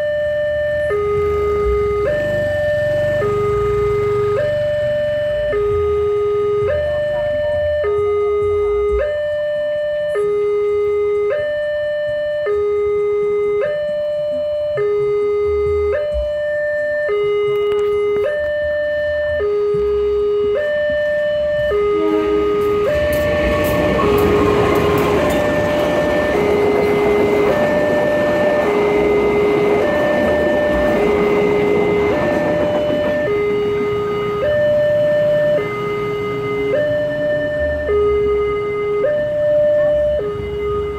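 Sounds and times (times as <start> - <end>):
passing train rumble: 0.0 - 7.8, 21.0 - 40.9
level crossing two-tone alarm: 0.0 - 40.9.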